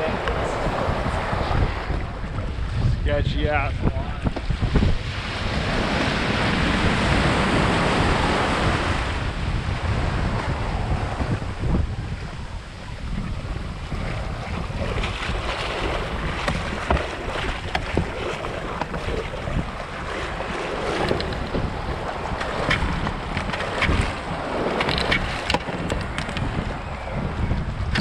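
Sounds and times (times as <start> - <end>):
surf washing: 0.0 - 28.0
wind buffeting microphone: 0.0 - 28.0
splashes and knocks: 14.4 - 26.8.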